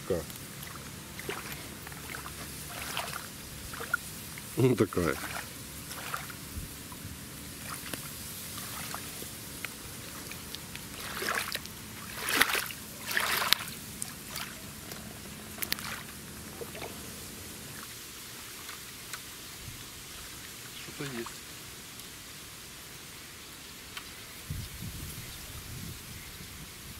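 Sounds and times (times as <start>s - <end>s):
outdoor background noise: 0.0s - 26.9s
water lapping and trickling: 0.0s - 26.9s
sharp water splashes: 0.1s - 21.5s.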